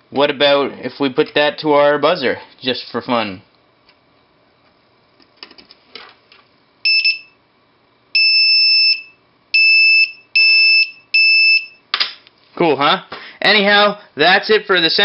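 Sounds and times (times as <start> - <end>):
buzzer high-pitched tone: 6.8 - 7.4, 8.1 - 11.8.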